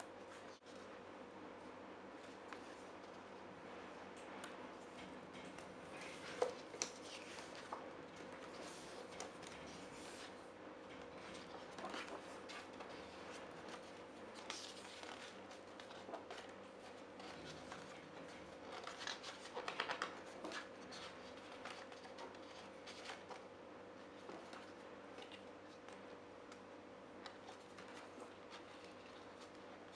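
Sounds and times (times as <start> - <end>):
faint steady hum: 0.0 - 29.9
book pages turning: 5.5 - 26.6, 27.2 - 29.9.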